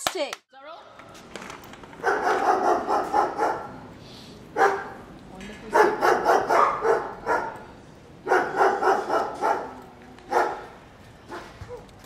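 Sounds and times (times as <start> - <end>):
small dog barking: 2.0 - 3.7, 4.6 - 5.0, 5.7 - 7.6, 8.2 - 11.8.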